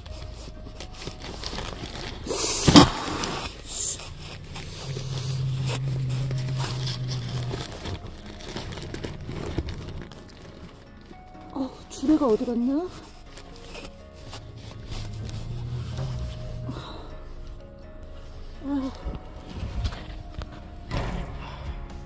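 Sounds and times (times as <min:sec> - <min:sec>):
cardboard rustling: 0:00.0 - 0:21.1
cat hissing: 0:02.3 - 0:08.0
cat growling low: 0:02.3 - 0:10.1, 0:14.6 - 0:17.2.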